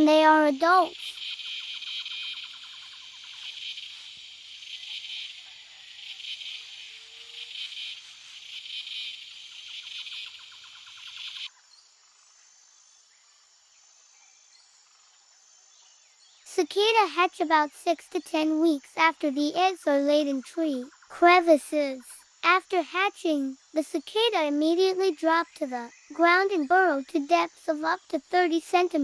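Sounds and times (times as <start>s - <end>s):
cicada buzzing: 0.0s - 11.6s.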